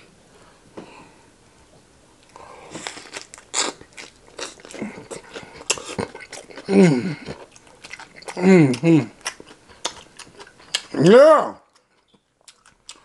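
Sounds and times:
lettuce crunching while chewing: 0:02.2 - 0:11.0, 0:11.7 - 0:13.0
person humming: 0:06.7 - 0:07.3, 0:08.4 - 0:09.2.

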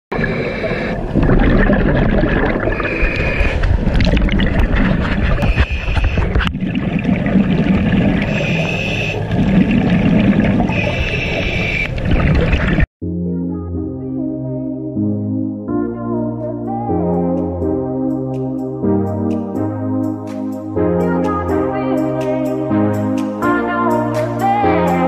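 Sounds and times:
exhaled bubbles rumbling underwater: 0:00.1 - 0:12.9
regulator inhale hiss: 0:08.3 - 0:09.2.

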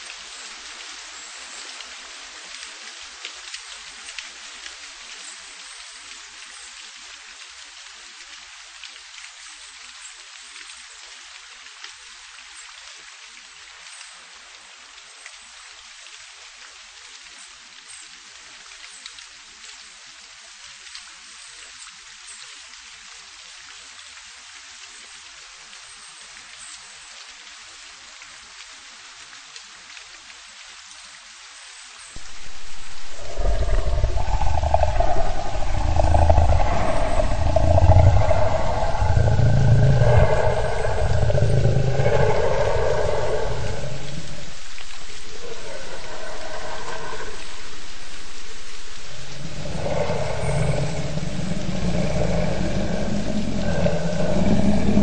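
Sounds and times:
rain hiss with drop patter: 0:00.0 - 0:55.0
loud deep sound: 0:32.2 - 0:45.4.

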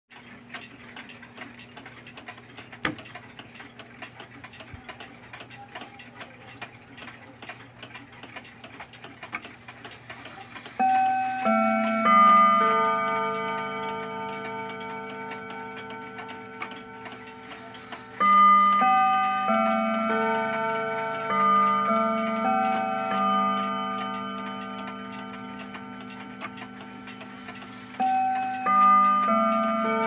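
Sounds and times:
mantel clock ticking: 0:00.1 - 0:30.0
clock chime notes: 0:10.4 - 0:30.0.

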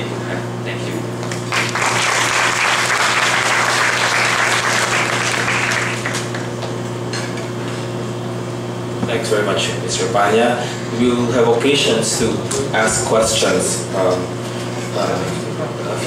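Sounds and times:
steady low hum: 0:00.0 - 0:16.0
audience applauding: 0:01.5 - 0:06.7.

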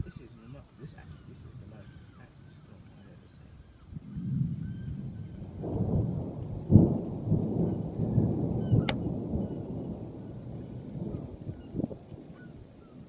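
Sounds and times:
thunder rumbling: 0:03.8 - 0:13.0
sharp thunder crack: 0:03.9 - 0:12.8.

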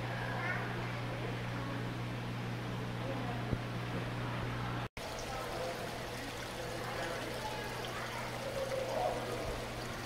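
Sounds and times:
water trickling into tank: 0:05.0 - 0:10.0.

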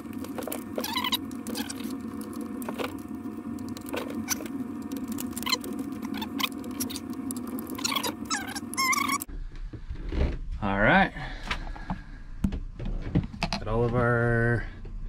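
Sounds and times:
cables clicking and rattling: 0:00.0 - 0:09.3
steady low hum: 0:00.0 - 0:15.0.

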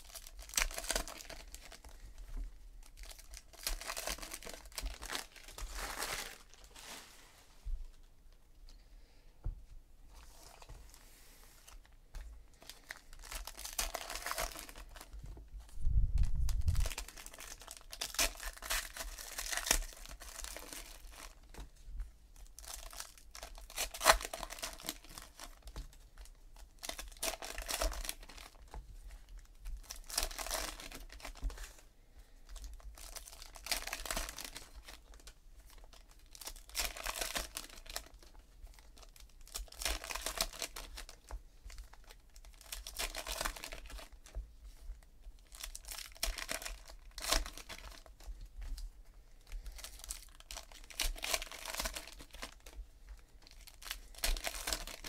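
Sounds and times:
crinkly wrappers tearing: 0:00.0 - 0:02.2, 0:02.8 - 0:07.0, 0:12.6 - 0:15.2, 0:16.2 - 0:21.5, 0:22.4 - 0:31.8, 0:32.6 - 0:44.4, 0:45.3 - 0:48.8, 0:49.5 - 0:55.0.

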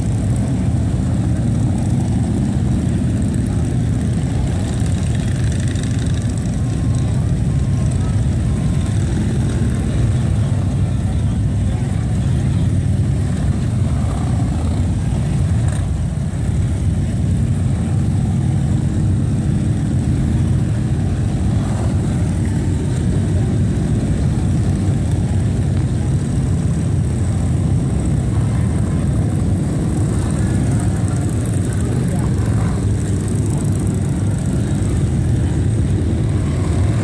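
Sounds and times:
motorcycle engines droning: 0:00.0 - 0:37.0.

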